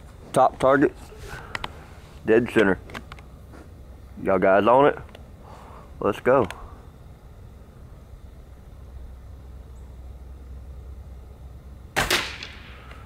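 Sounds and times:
low steady rumble: 0.0 - 13.0
air rifle shot: 12.0 - 13.0.

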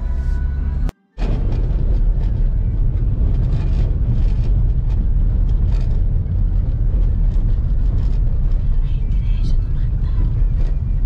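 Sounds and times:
car engine and road rumble: 0.0 - 11.0
clicks and rattles in car: 1.2 - 11.0.

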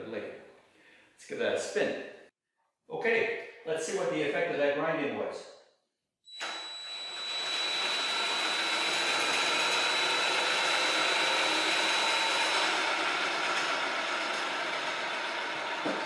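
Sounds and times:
cordless drill whirring: 6.4 - 14.8.

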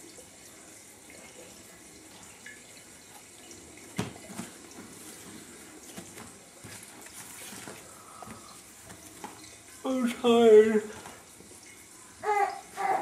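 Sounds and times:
paper rustling: 4.3 - 9.4.

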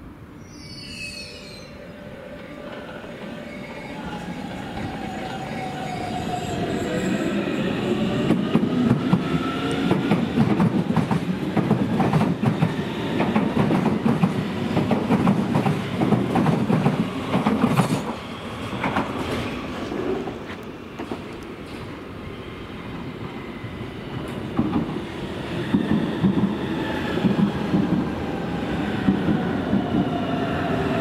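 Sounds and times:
train wheels rumbling and clattering: 7.7 - 22.0, 24.1 - 31.0.

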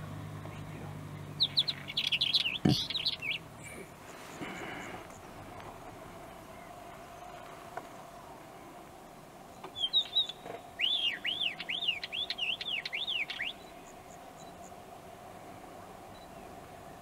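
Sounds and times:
bird singing whistled notes: 1.3 - 3.4, 9.5 - 14.7.

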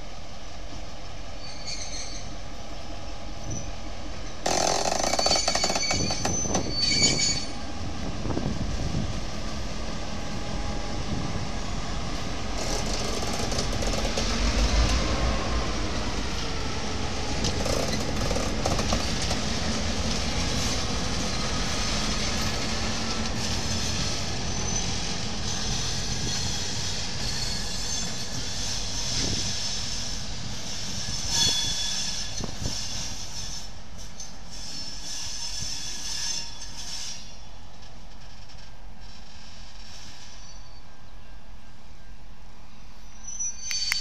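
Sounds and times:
wheel flange squeal: 1.4 - 2.3, 4.5 - 7.6, 23.4 - 37.5, 43.0 - 44.0
diesel locomotive engines running: 7.4 - 31.3.

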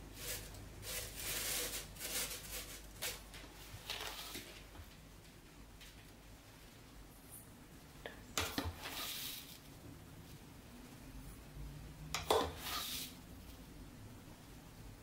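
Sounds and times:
plastic cover crinkling: 0.2 - 4.6.

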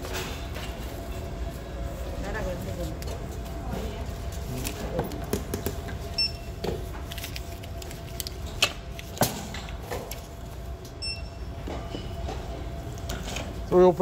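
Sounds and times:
steady low hum: 0.0 - 14.0
barcode scanner beeps: 6.1 - 6.6, 11.0 - 11.5.

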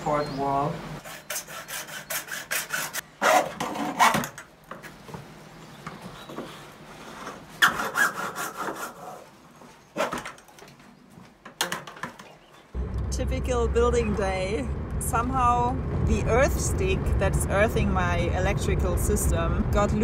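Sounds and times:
hand saw cutting plastic pipe: 1.0 - 4.4, 7.6 - 9.2.

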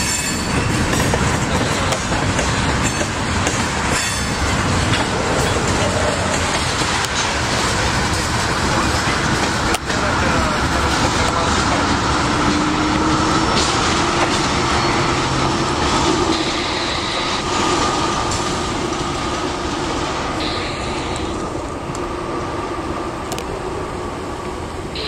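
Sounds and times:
train wheels rumbling on track: 0.0 - 25.0.

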